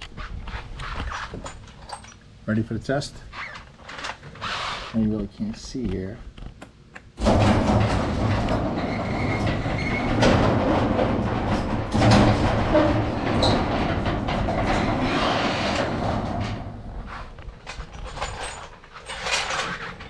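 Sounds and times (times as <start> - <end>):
garage door opener rattling: 7.2 - 20.0.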